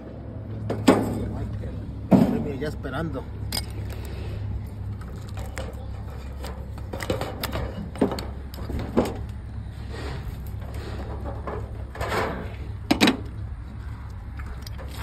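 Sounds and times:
steady low rumble: 0.0 - 15.0.

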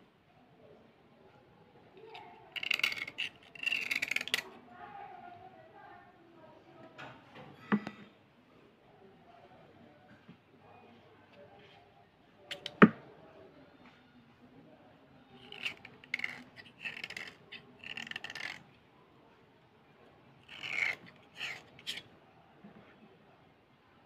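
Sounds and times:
blade scraping slate pencil: 2.5 - 4.4, 15.4 - 18.6, 20.4 - 22.0.

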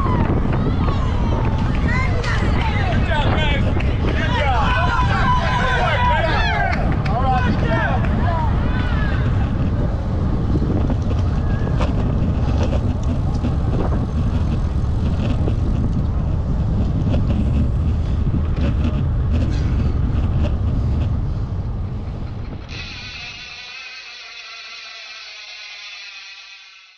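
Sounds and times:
wind buffeting microphone: 0.0 - 23.8.

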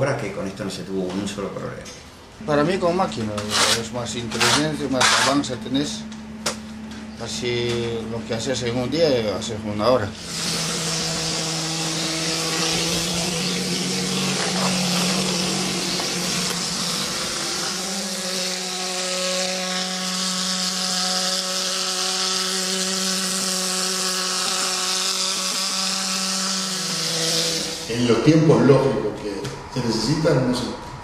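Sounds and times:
spraying machine motor hum: 4.2 - 27.9
compressed air hissing: 22.8 - 27.9.

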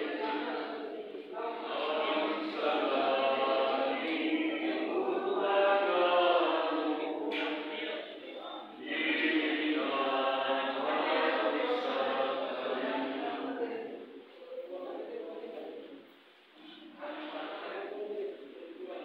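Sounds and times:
group singing chant-like: 0.0 - 14.4.

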